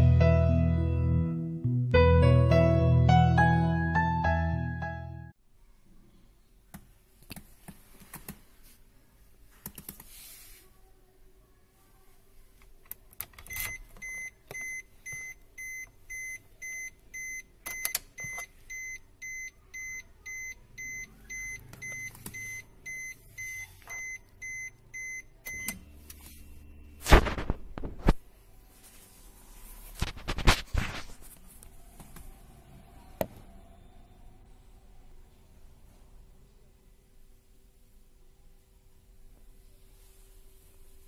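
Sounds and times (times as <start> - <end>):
car warning chime beeping: 13.5 - 25.9.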